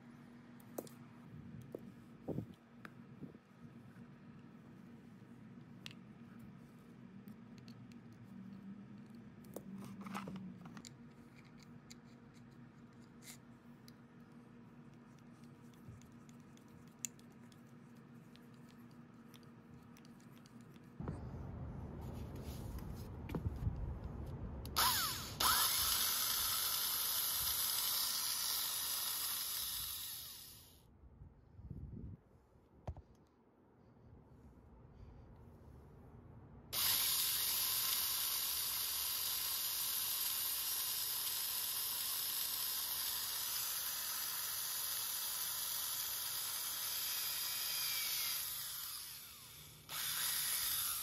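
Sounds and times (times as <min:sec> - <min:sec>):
steady low hum: 0:00.0 - 0:36.8
screwdriver clicking and scraping metal: 0:07.2 - 0:21.0
electric drill whirring: 0:24.7 - 0:30.8, 0:36.8 - 0:51.0.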